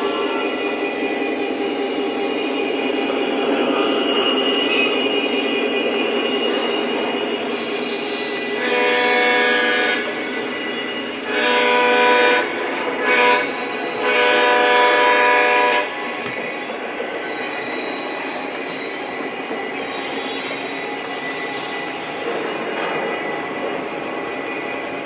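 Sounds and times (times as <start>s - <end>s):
model train running on track: 0.0s - 25.0s
electronic train horn blasts: 7.7s - 16.4s.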